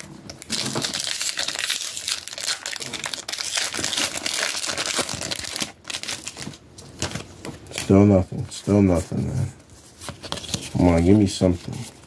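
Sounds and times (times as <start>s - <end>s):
foil wrapper crinkling: 0.4s - 6.6s.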